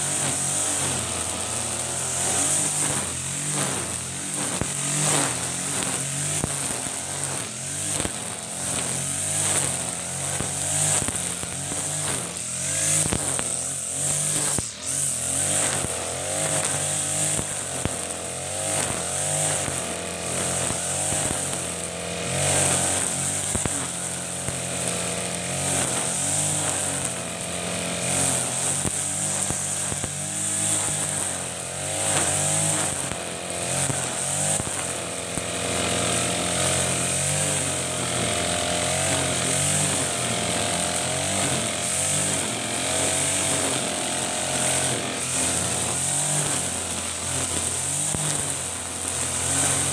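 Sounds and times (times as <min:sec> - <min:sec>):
brush cutter engine running: 0:00.0 - 0:49.9
nylon line cutting grass: 0:00.0 - 0:49.9.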